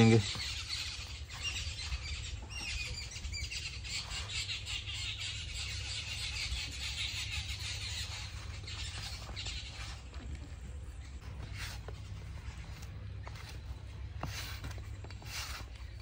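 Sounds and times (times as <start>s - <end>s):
birds chirping: 0.0s - 16.0s
steady low rumble: 7.6s - 16.0s.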